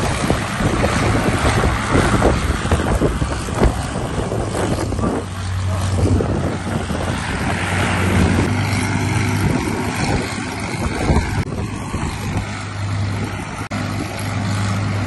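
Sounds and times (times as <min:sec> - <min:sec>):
propeller aircraft engine drone: 0:00.0 - 0:15.0
wind buffeting microphone: 0:00.0 - 0:15.0.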